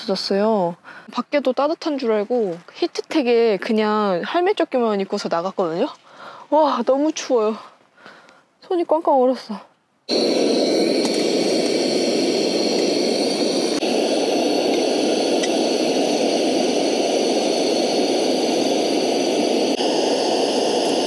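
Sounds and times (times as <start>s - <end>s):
gas stove burner hissing roar: 10.1s - 21.0s.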